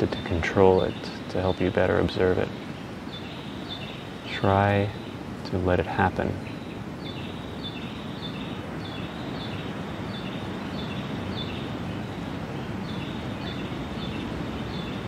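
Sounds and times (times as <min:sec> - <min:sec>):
distant surf: 0:00.0 - 0:15.0
small bird chirping: 0:00.0 - 0:15.0.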